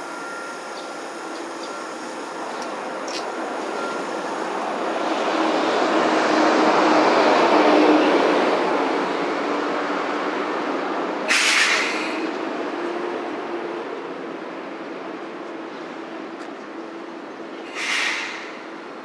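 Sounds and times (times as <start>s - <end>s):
tram wheels rumbling on rails: 0.0s - 19.0s
short loud hiss: 11.3s - 12.2s, 17.7s - 18.6s.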